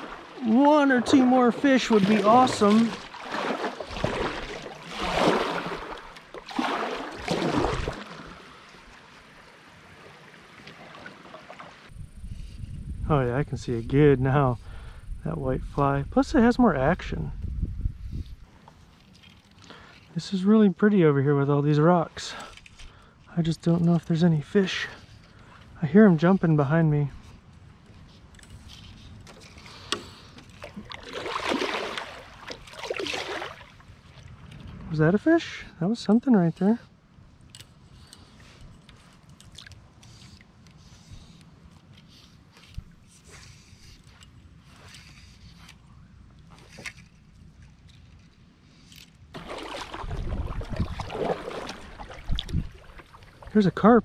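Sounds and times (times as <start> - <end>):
kayak paddle splashing water: 0.0 - 11.9, 29.4 - 34.4, 49.4 - 53.6
faint water hiss: 8.1 - 15.9.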